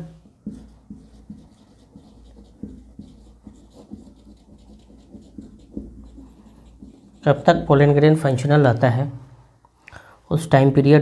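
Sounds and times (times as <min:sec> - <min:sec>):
pen writing on a surface: 0:00.2 - 0:07.9.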